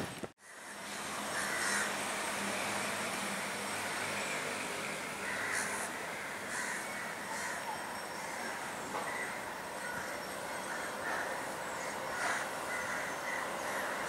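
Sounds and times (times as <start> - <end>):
steady outdoor hiss: 0.0 - 14.0
crows cawing: 0.4 - 2.0, 5.2 - 14.0.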